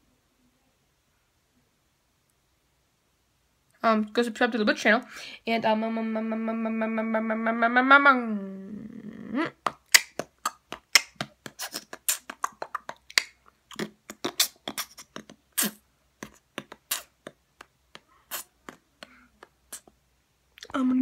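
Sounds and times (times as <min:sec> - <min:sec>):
boy making mouth clicks: 0:09.4 - 0:20.0.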